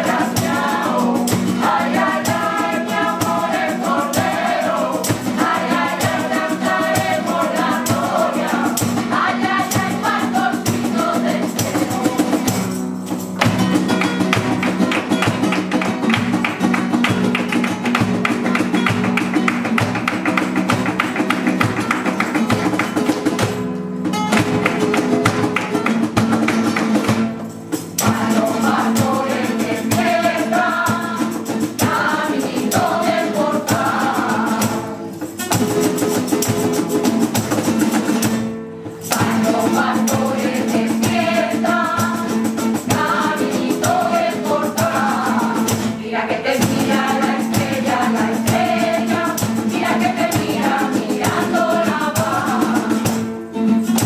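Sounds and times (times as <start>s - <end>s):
women's choir singing: 0.0s - 12.5s, 28.0s - 35.6s, 39.1s - 53.3s
tambourine: 0.0s - 23.3s, 25.0s - 46.0s, 46.6s - 54.0s
rhythmic hand clapping: 0.0s - 34.9s
cajon drum: 0.0s - 54.0s
strummed guitars: 0.0s - 54.0s.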